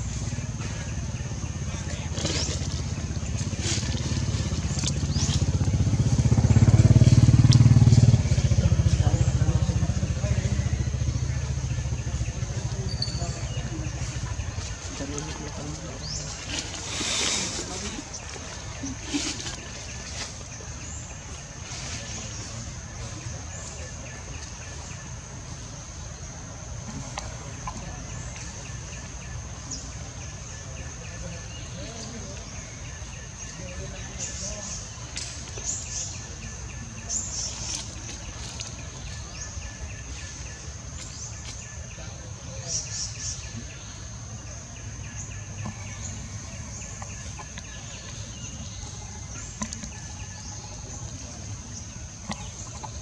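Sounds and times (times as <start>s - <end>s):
low rumble: 0.0s - 30.6s.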